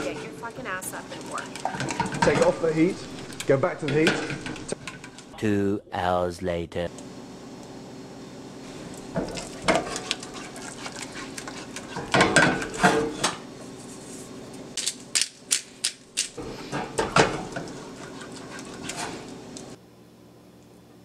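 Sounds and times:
spatula scraping a saucepan: 0.0 - 3.3, 9.3 - 13.3, 16.4 - 19.3.

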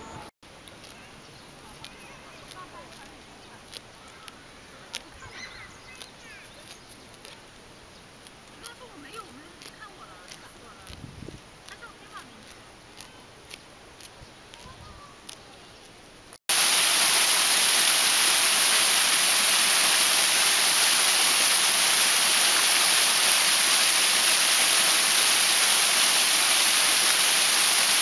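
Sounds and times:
faint outdoor hush: 0.0 - 28.0
waterfall pouring over rocks: 16.5 - 28.0.

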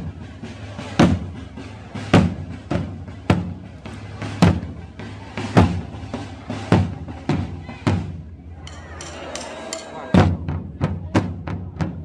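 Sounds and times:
drums beating slow rhythm: 0.0 - 12.0.

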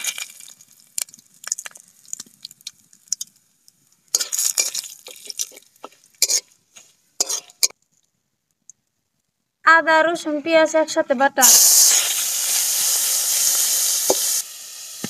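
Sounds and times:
spices sizzling in hot oil: 0.0 - 7.8, 11.4 - 15.0
metal spatula scraping wok: 4.1 - 7.8.

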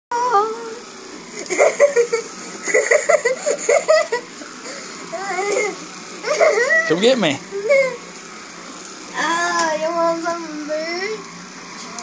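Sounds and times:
child giggling and laughing: 1.5 - 4.3, 5.3 - 6.8.

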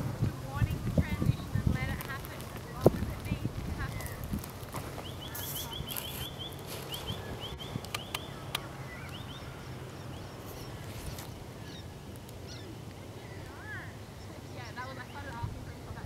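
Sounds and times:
bird chirping: 4.9 - 15.4
sharp clicks: 7.8 - 9.2.

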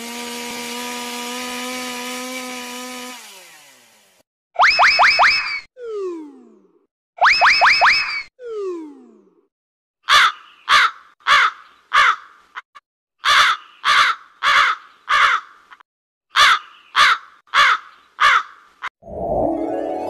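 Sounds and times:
crow cawing: 10.0 - 12.4, 13.2 - 18.6.

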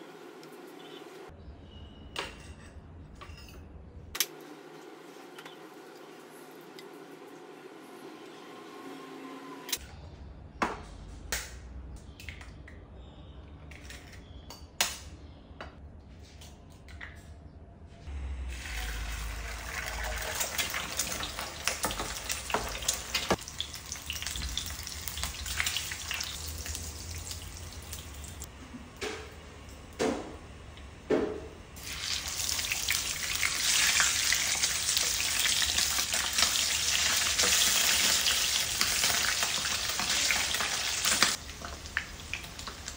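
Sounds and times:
eggs sizzling in hot oil: 18.6 - 28.5, 31.8 - 42.9.

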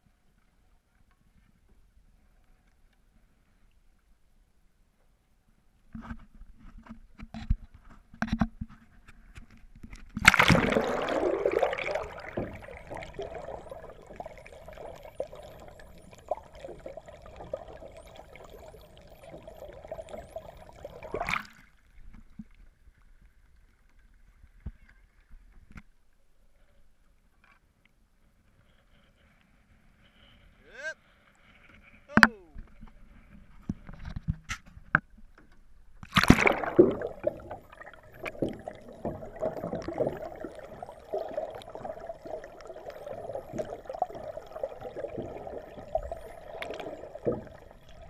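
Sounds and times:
faint water sounds: 0.0 - 48.0
muffled underwater bubbling: 10.2 - 21.5, 36.1 - 48.0
loud splash: 10.2 - 21.6, 36.1 - 40.3.

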